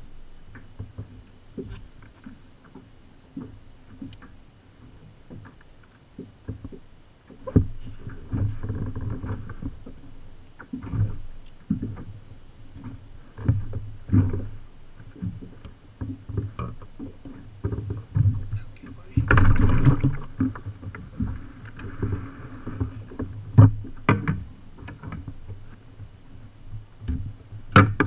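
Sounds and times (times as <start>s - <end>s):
water slapping: 12.8s - 25.6s
thumps on a plastic kayak hull: 22.9s - 25.3s, 27.1s - 28.0s.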